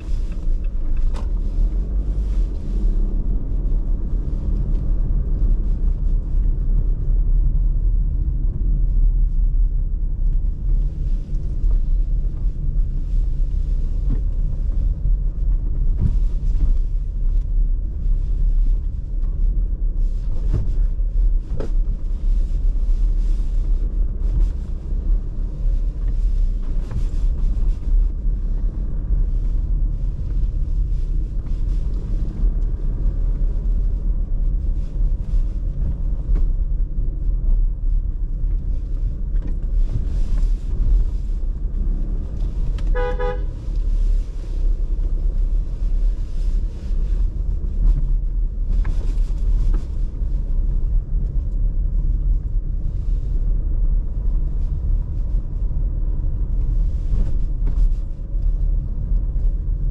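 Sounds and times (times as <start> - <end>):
car engine and tyres rumbling: 0.0 - 59.9
car horn honk: 42.9 - 43.6.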